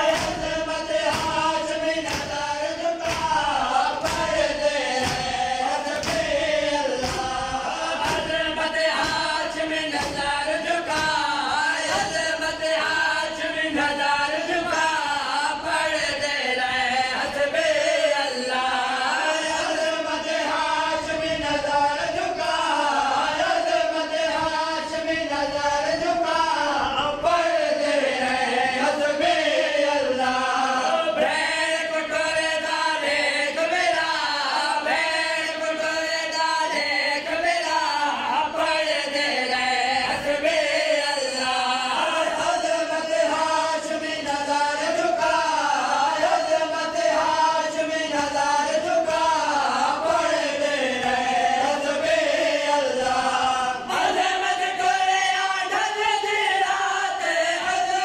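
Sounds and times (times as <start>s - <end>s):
men chanting a lament: 0.0s - 58.0s.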